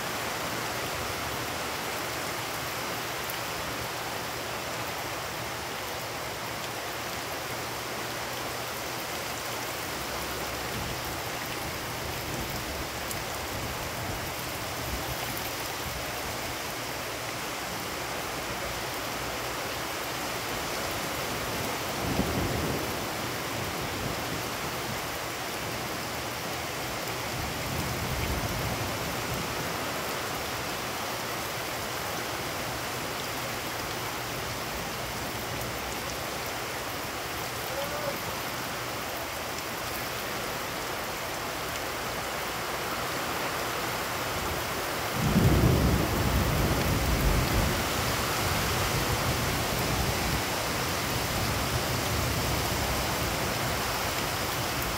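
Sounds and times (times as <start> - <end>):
heavy rain falling: 0.0 - 54.9
low thunder rumbles: 45.2 - 50.4.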